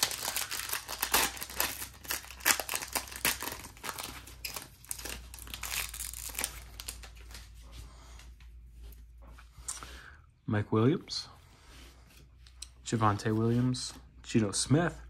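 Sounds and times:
foil wrapper crinkling: 0:00.0 - 0:07.5.

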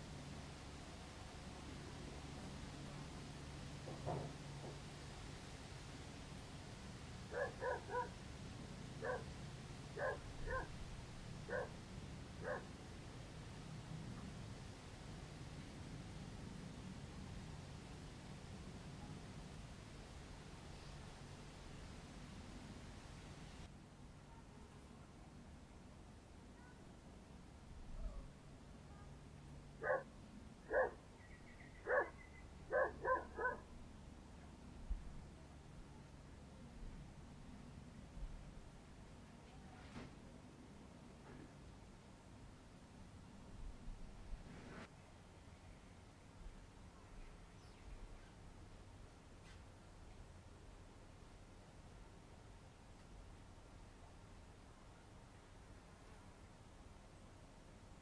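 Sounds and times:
small dog yapping: 0:07.3 - 0:08.1, 0:09.0 - 0:09.2, 0:10.0 - 0:10.7, 0:11.5 - 0:11.7, 0:12.4 - 0:12.6, 0:30.7 - 0:31.0, 0:31.9 - 0:33.6.

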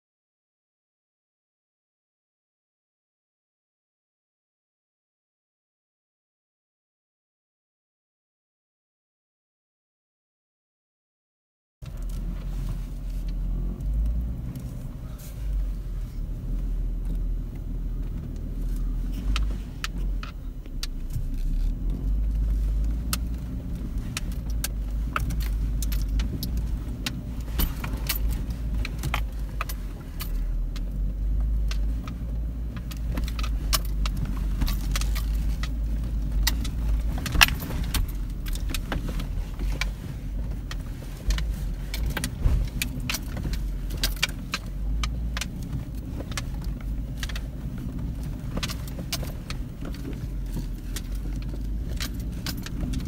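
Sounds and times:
vehicle engine and tyres rumbling: 0:11.8 - 0:53.0
rattles and clicks: 0:16.4 - 0:53.0.

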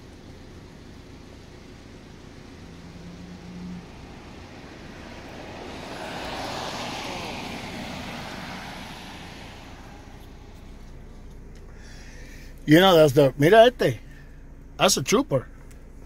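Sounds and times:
vehicle passing by: 0:02.4 - 0:12.6.

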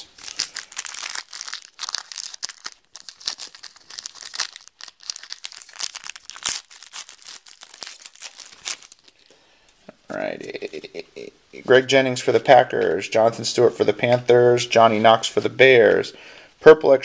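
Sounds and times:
plastic wrapper tearing and crinkling: 0:00.0 - 0:09.3.

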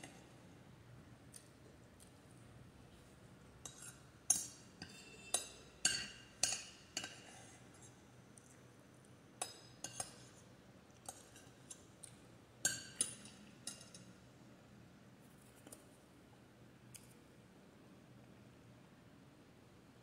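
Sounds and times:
metal spoon clinking on glass bowl: 0:03.6 - 0:07.8, 0:09.4 - 0:10.4, 0:12.6 - 0:14.1.

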